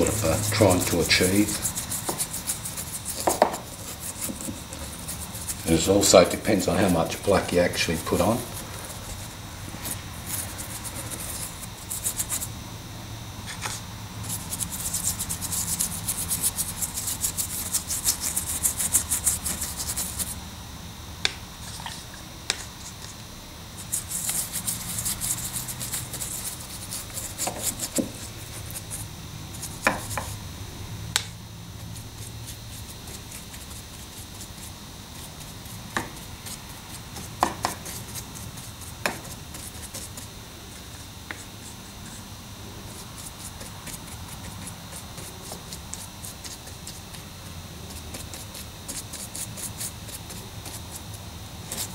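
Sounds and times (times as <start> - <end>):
paintbrush scrubbing plaster: 0.0 - 12.5, 13.4 - 20.4, 23.8 - 30.4, 31.8 - 51.9
paintbrush tapping: 3.2 - 5.5, 29.8 - 30.3.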